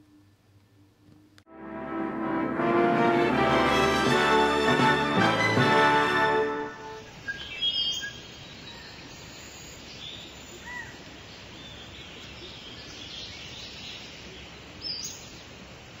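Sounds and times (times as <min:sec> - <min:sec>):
outdoor ambience hiss: 0:00.0 - 0:16.0
bird chirps and whistles: 0:07.2 - 0:08.3.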